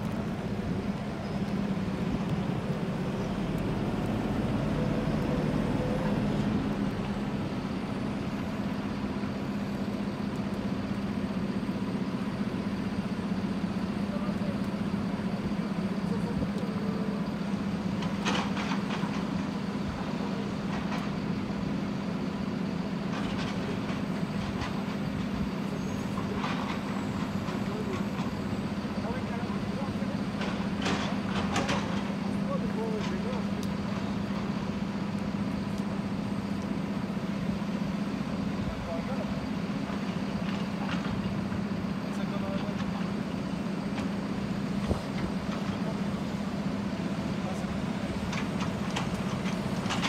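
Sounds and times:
crane diesel engine running: 0.0s - 50.0s.

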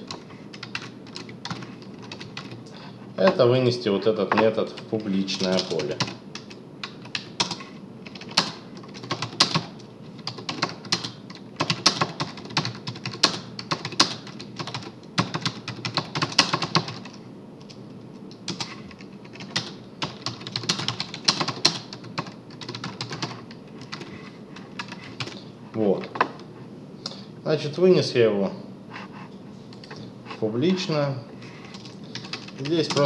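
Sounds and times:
typing on a keyboard: 0.0s - 2.6s, 5.0s - 17.8s, 18.4s - 24.1s, 31.7s - 33.0s.

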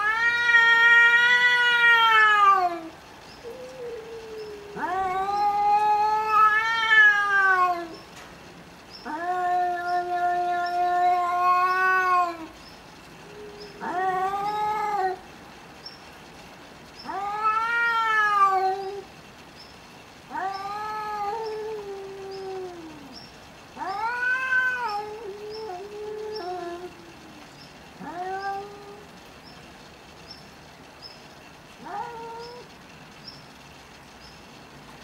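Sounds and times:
cats yowling: 0.0s - 8.2s, 9.0s - 12.6s, 13.2s - 15.3s, 17.0s - 19.1s, 20.3s - 23.2s, 23.8s - 29.2s, 31.8s - 32.7s.

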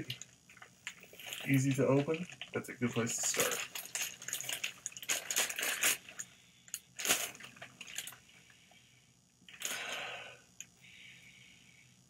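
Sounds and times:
plastic bag rustling and crinkling: 0.0s - 6.3s, 6.9s - 8.2s.

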